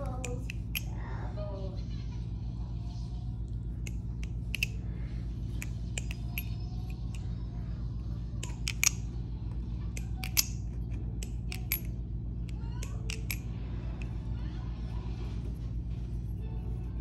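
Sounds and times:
low hum: 0.0 - 17.0
butterfly knife metal clicks: 3.8 - 4.8, 9.9 - 11.9.

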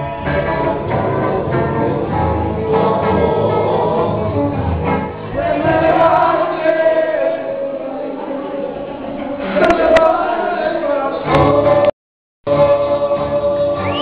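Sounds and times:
upright bass: 0.0 - 6.3
acoustic guitars: 0.0 - 11.9
men singing together: 0.0 - 11.9, 12.5 - 14.0.

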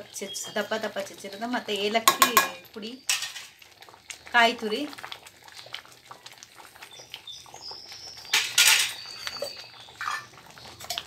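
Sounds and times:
spoon scraping metal pot: 2.1 - 2.6
faint high chirps: 6.9 - 10.8.

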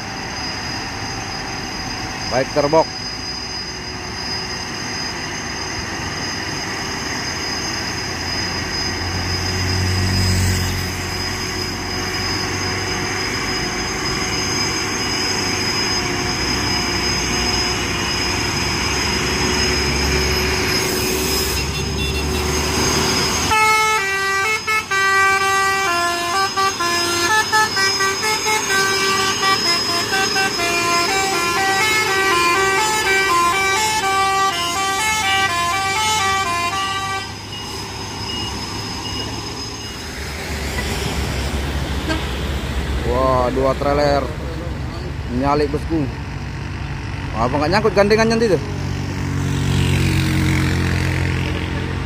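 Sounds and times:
heavy truck engines labouring: 0.0 - 52.0
musical horn melody: 23.5 - 37.4, 42.0 - 42.4.

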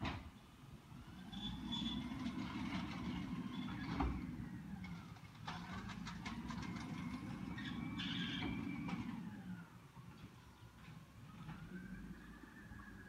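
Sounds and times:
garbage truck diesel engine: 0.0 - 13.0
high squeals: 7.3 - 9.2.

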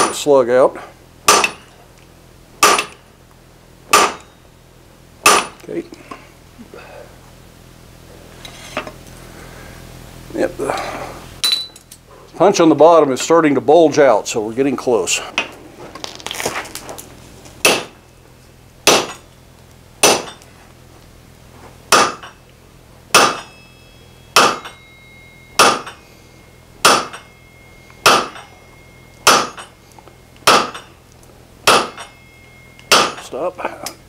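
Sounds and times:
hammer striking steel punch: 0.0 - 0.3, 1.3 - 1.8, 2.6 - 3.0, 3.9 - 4.4, 5.2 - 5.7, 17.6 - 18.0, 18.8 - 19.3, 20.0 - 20.4, 21.9 - 22.4, 23.1 - 26.0, 26.8 - 27.4, 28.0 - 29.8, 30.4 - 31.0, 31.6 - 33.3.

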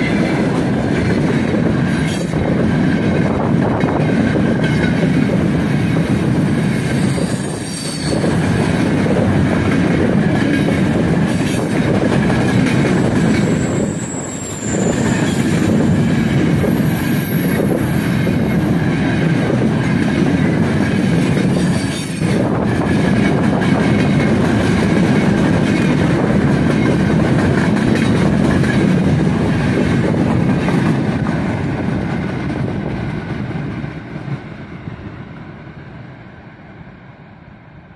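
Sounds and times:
train wheels on rails: 0.0 - 37.9
high wheel squeals: 6.8 - 8.4, 13.0 - 17.9.

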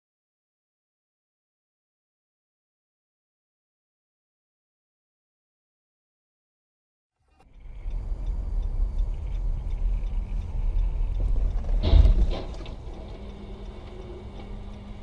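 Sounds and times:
car cabin road and engine rumble: 7.4 - 15.0.

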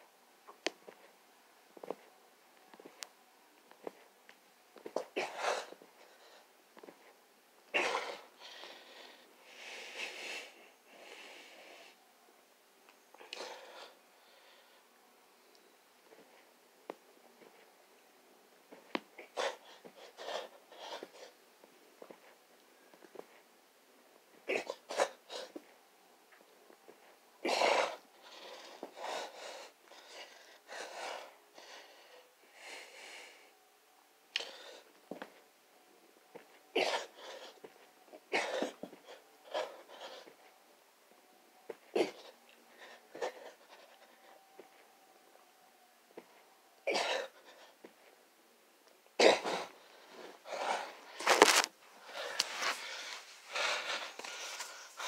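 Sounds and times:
person breathing hard: 27.8 - 33.6, 49.6 - 55.0.

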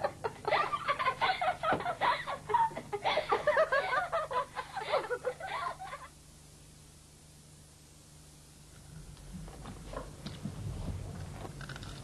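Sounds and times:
girls giggling and laughing: 0.0 - 6.2.

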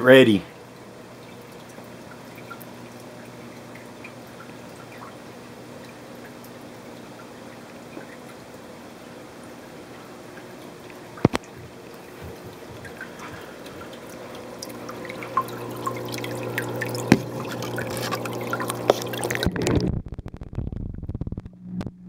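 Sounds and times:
steady low hum: 0.0 - 22.0
water dripping and trickling: 0.5 - 19.6
bubbles popping: 10.4 - 21.3.

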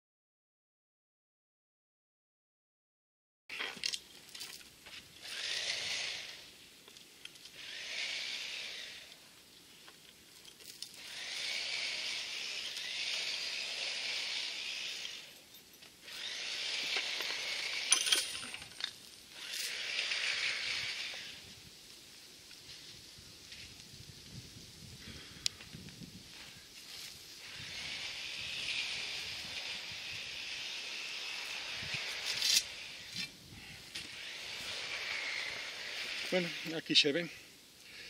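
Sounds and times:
rebar scraping through soil: 3.5 - 6.6, 10.1 - 21.4, 26.2 - 37.2.

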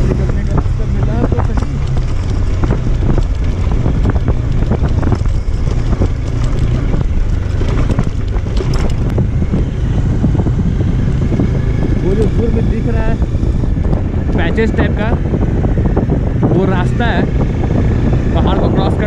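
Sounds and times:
motorcycle engine running: 0.0 - 19.0
wind buffeting microphone: 0.0 - 19.0
knocks from bumpy ground: 1.2 - 9.2.

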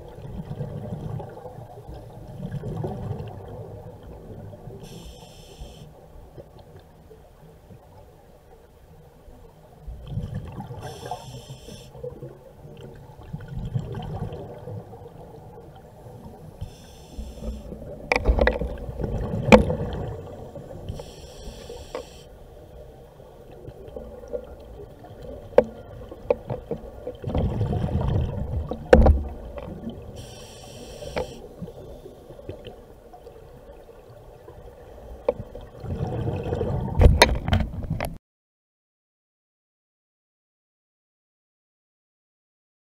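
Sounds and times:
rumble of exhaled bubbles: 0.0 - 4.9, 12.0 - 16.4, 17.2 - 21.9, 23.5 - 30.2, 31.5 - 38.0
regulator hiss on inhalation: 4.8 - 5.9, 10.8 - 12.0, 16.6 - 17.7, 20.9 - 22.3, 30.2 - 31.5
sharp clicks and knocks: 37.0 - 38.2.

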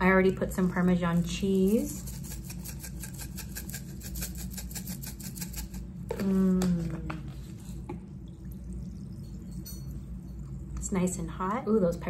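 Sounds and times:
spice shaker rattling: 1.7 - 5.9.

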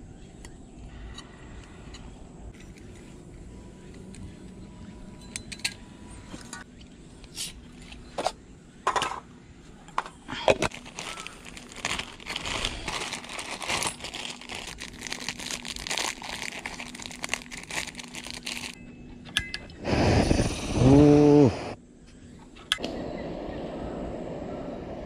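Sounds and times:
material crinkling and rustling: 10.6 - 18.8.

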